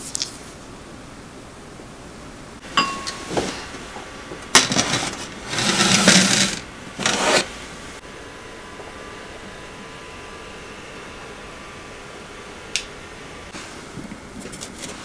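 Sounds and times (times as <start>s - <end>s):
glass bowls clinking on steel tray: 2.6s - 3.7s
bowl scraping on tray: 4.6s - 7.5s.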